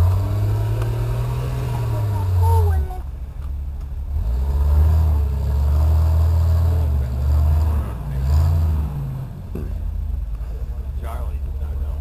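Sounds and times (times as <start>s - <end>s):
buggy engine revving hard: 0.0s - 3.1s, 4.0s - 12.0s.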